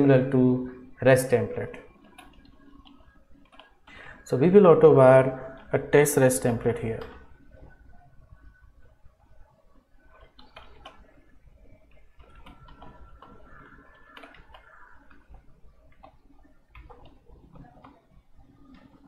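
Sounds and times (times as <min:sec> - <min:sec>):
keyboard keys clicking: 0:02.0 - 0:03.9, 0:10.1 - 0:19.0.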